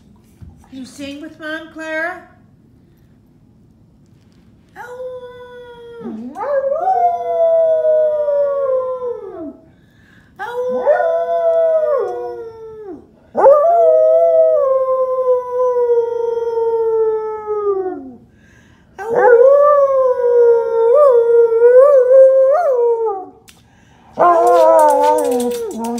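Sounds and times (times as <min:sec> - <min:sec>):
dog howling: 0:24.2 - 0:25.9.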